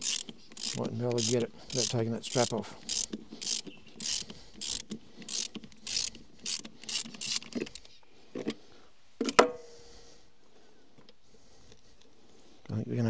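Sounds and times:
ratchet wrench clicking: 0.0 - 7.8.

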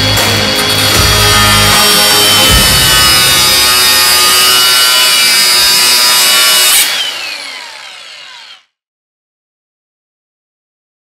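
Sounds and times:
angle grinder grinding steel: 0.0 - 8.7.

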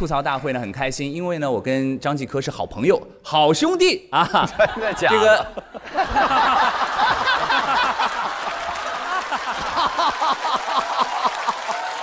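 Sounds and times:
audience laughing: 4.2 - 12.0.

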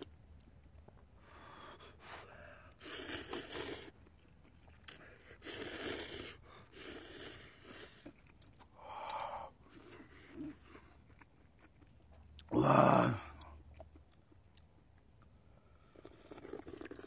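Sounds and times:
slurping noodles: 2.8 - 8.2, 15.8 - 17.0.

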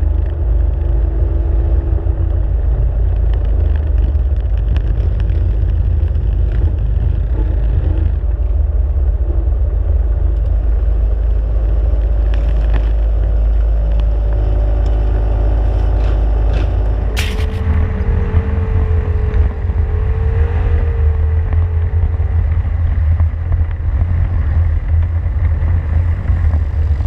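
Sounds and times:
low rumble on microphone: 0.0 - 27.0
other quad engines humming: 0.0 - 27.0
quad engine running: 0.0 - 27.0.

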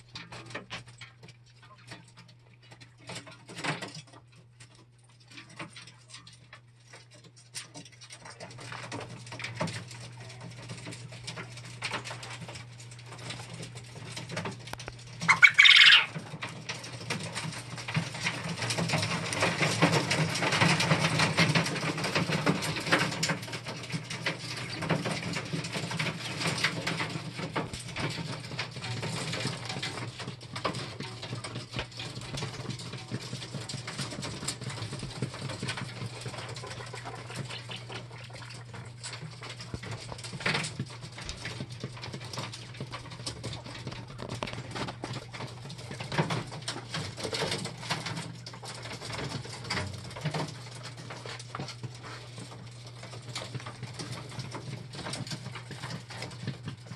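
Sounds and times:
quail pecking and scratching: 0.0 - 56.9
quail call: 15.2 - 16.2.

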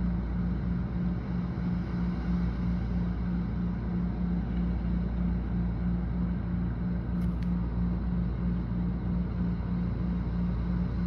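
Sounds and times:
pulsing low hum: 0.0 - 11.0
wind: 0.0 - 11.0
brief clicks: 7.2 - 7.6.

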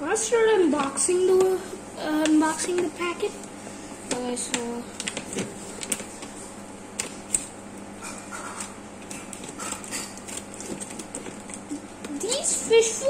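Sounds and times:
faint steady hum: 0.0 - 13.0
plastic bag crinkling and clicking: 4.1 - 6.4, 7.0 - 12.6.

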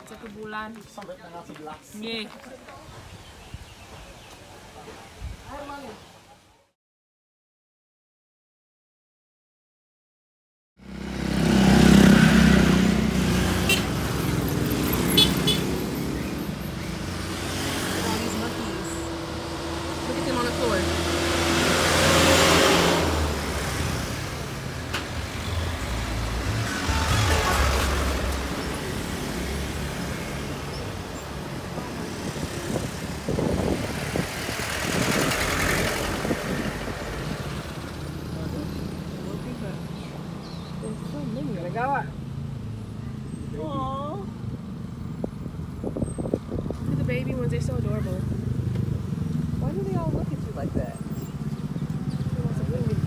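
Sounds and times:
vehicle engine rumbling: 10.8 - 53.0
vehicle engine running: 23.4 - 30.3
short sharp sounds: 26.4 - 29.0.

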